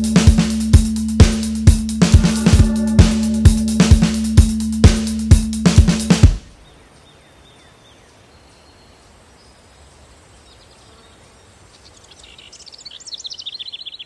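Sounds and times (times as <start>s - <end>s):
low rumble: 0.0s - 6.2s.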